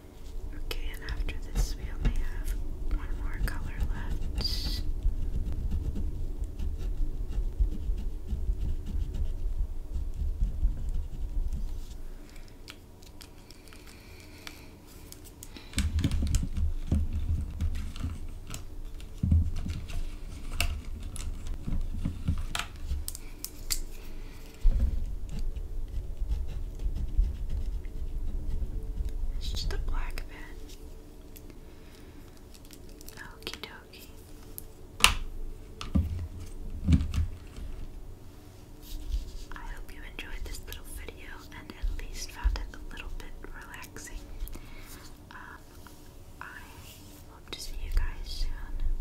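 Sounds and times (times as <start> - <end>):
pen scratching on paper: 3.5 - 11.6, 25.3 - 29.2.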